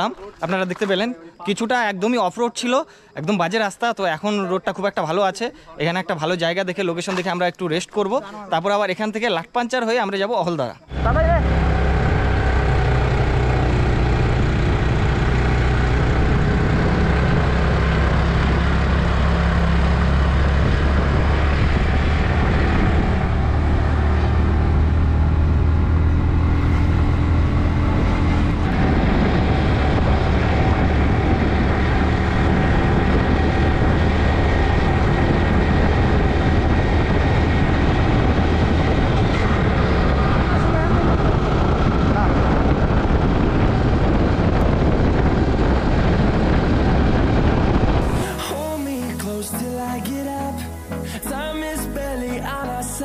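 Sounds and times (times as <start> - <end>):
motorcycle engine running: 10.9 - 49.4.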